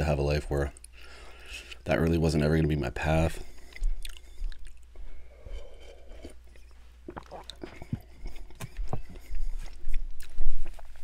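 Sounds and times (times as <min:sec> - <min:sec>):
wet mouth clicks and swallows: 0:03.6 - 0:05.0, 0:06.0 - 0:11.0
person gulping soup: 0:03.8 - 0:11.0.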